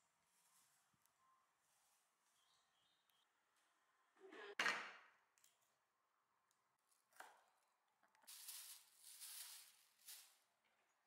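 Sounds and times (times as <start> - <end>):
soft hissy rustle: 8.3 - 10.4.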